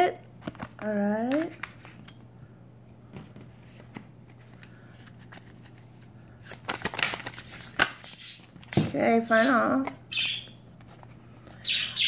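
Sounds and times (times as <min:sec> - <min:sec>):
low steady hum: 0:00.0 - 0:12.0
cards clicking and tapping: 0:00.4 - 0:02.2, 0:03.1 - 0:09.0
deck of cards shuffling: 0:03.4 - 0:08.8.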